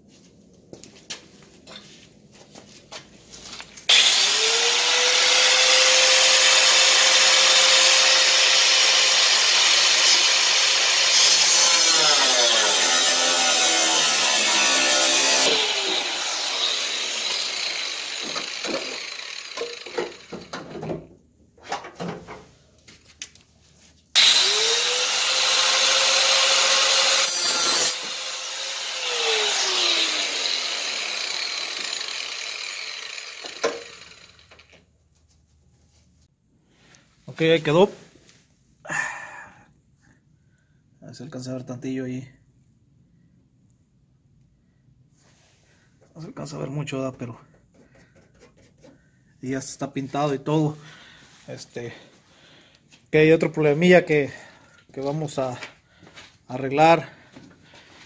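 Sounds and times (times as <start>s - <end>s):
power tool motor whine: 3.9s - 11.1s, 12.6s - 20.5s, 24.2s - 34.7s
harsh metal cutting noise: 3.9s - 20.4s, 24.2s - 34.7s.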